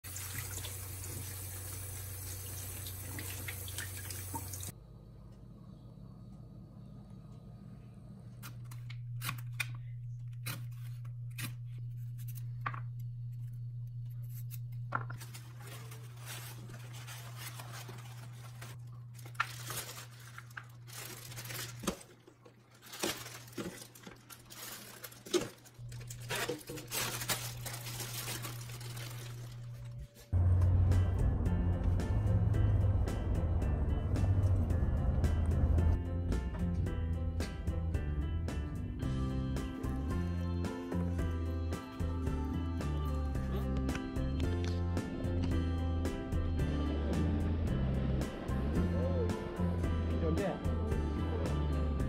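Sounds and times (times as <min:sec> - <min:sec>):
steady low hum: 0:04.7 - 0:19.2, 0:43.1 - 0:52.0
plastic bag crinkling: 0:15.1 - 0:30.3.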